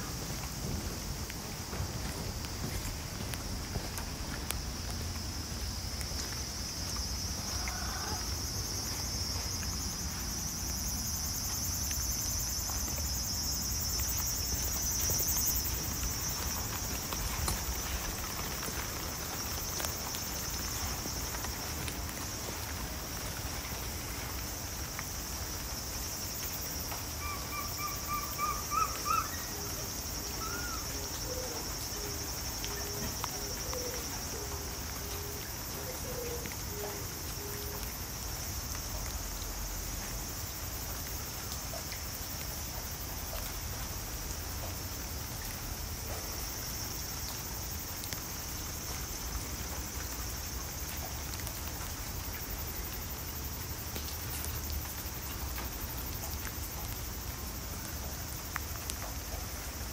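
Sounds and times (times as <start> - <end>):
steady high-pitched hiss: 0.0 - 59.9
birds calling: 27.2 - 29.5.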